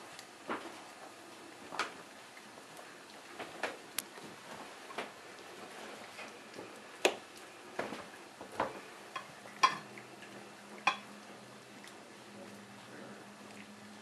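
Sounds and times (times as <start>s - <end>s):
kibble clinking on metal bowls: 9.2s - 9.9s.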